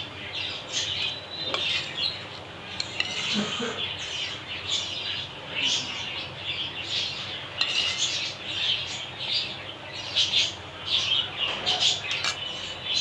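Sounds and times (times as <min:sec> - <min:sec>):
small birds chirping: 0:00.0 - 0:13.0
spoon clinking glass bowl: 0:02.8 - 0:03.4, 0:07.6 - 0:08.1, 0:12.1 - 0:12.8.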